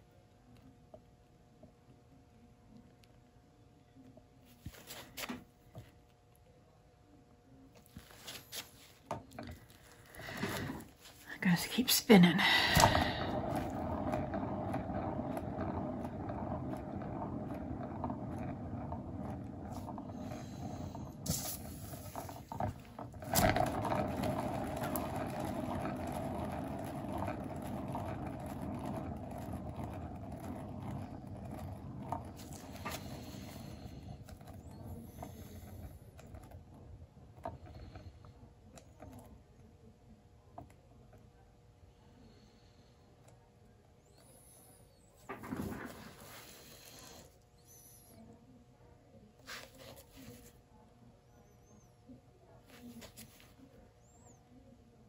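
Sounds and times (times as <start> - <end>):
turntable bearing rumbling: 9.1 - 39.7, 44.0 - 48.0.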